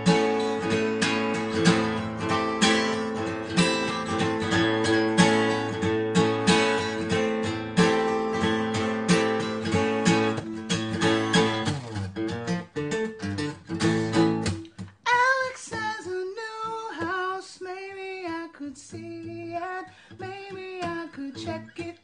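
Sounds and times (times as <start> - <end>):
acoustic guitar strummed: 0.0 - 22.0
man singing: 15.0 - 22.0.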